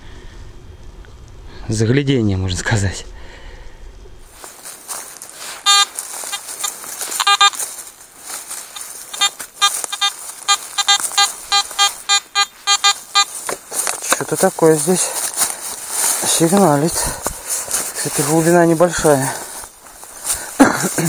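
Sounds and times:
metal detector beeping: 0:05.4 - 0:19.5.

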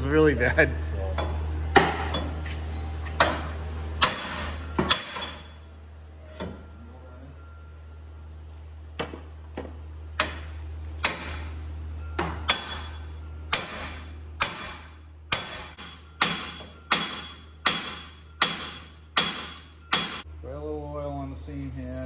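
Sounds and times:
hammer striking metal hub: 0:01.2 - 0:02.4, 0:03.1 - 0:05.6, 0:10.2 - 0:20.3.

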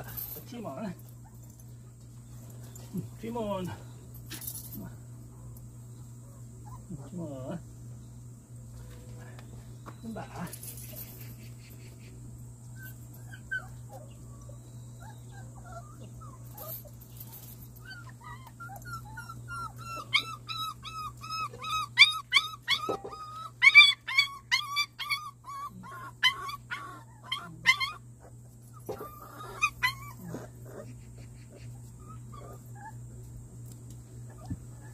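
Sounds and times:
puppy whimpering and yelping: 0:06.4 - 0:07.1, 0:12.7 - 0:33.1.

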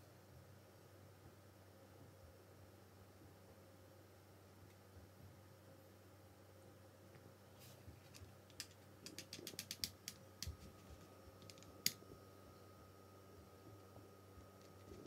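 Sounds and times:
letter tiles clicking on rack: 0:08.1 - 0:10.7, 0:11.4 - 0:12.0.

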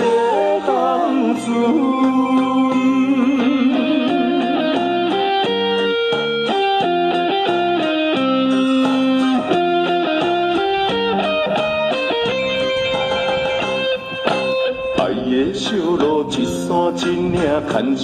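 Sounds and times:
instrumental pop backing track: 0:00.0 - 0:18.0.

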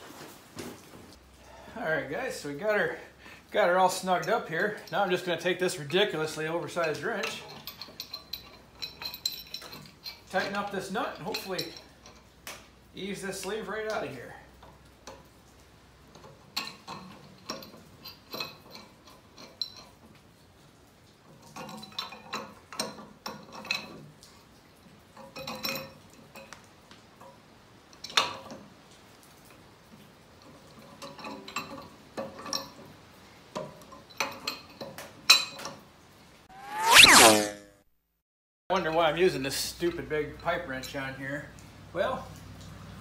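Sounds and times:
wrench clanking against metal: 0:06.4 - 0:12.3, 0:16.1 - 0:20.0.

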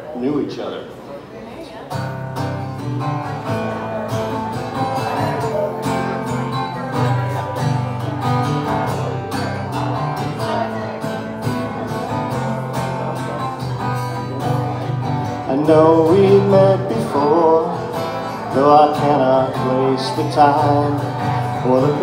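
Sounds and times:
acoustic guitars strumming: 0:01.9 - 0:22.0.

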